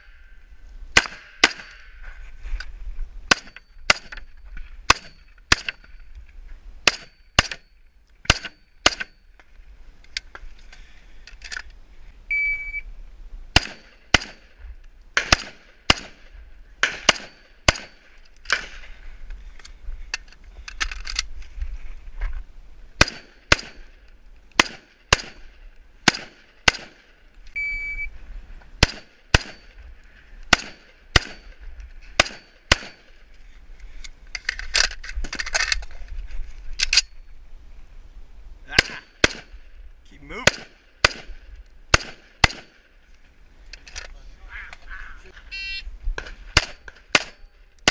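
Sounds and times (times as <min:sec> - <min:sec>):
high ringing tones: 0:12.3 - 0:12.9, 0:27.6 - 0:28.2, 0:45.5 - 0:45.9
rifle firing rapid shots: 0:15.2 - 0:18.8, 0:24.6 - 0:25.4, 0:26.0 - 0:27.0, 0:40.4 - 0:41.3, 0:41.9 - 0:42.8, 0:46.6 - 0:47.9.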